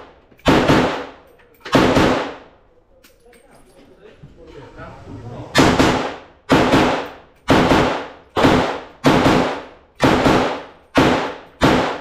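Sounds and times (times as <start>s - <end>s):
gunshots with echo: 0.0s - 2.5s, 5.6s - 12.0s.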